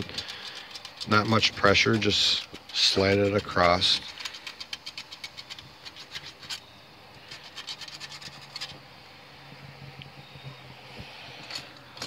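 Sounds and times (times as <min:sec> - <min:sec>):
hand file scratching metal: 0:00.0 - 0:06.6, 0:07.2 - 0:08.8.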